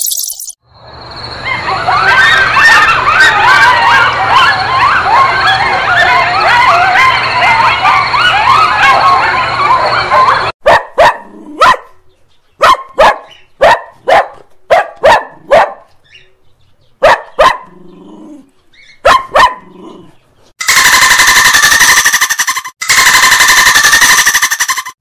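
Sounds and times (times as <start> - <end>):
chatter of high calls: 1.4 - 10.5
dog barking: 2.5 - 12.0, 12.6 - 15.9, 17.0 - 17.8, 19.0 - 19.8
loud fast rattle: 20.6 - 25.0.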